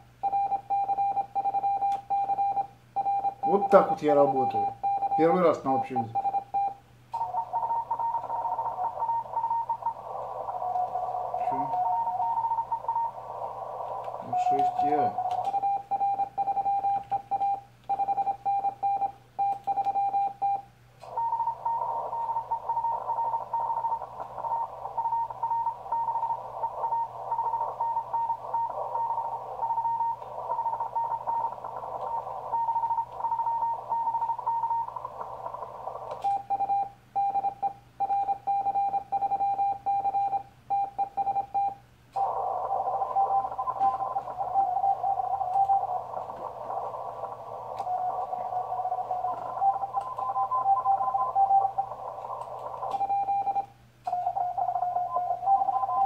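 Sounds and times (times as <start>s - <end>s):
morse code sidetone: 0.2s - 13.2s, 14.2s - 35.6s, 36.2s - 46.2s, 47.7s - 56.0s
radio band noise hiss: 3.5s - 6.2s, 7.2s - 15.9s, 21.0s - 37.1s, 42.1s - 56.0s.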